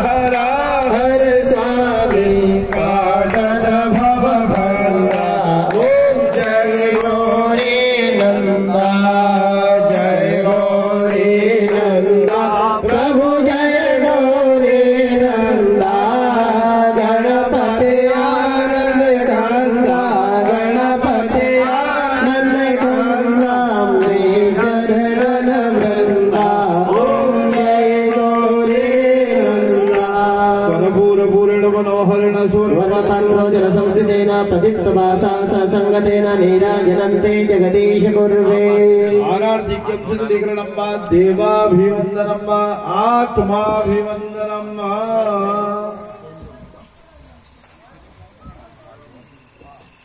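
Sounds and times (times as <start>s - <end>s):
person singing devotional song: 0.0s - 47.0s
steady percussion beat: 9.9s - 30.7s.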